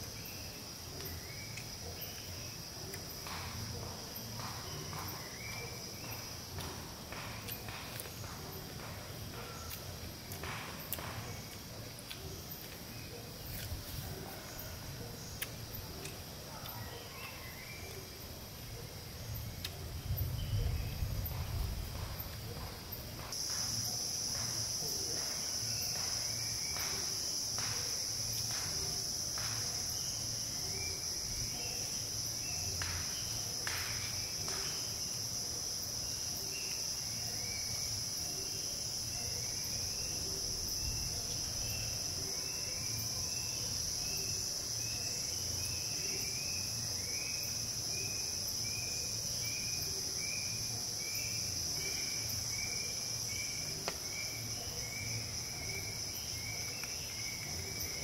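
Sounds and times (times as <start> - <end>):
high-pitched insect chorus: 0.0 - 58.0.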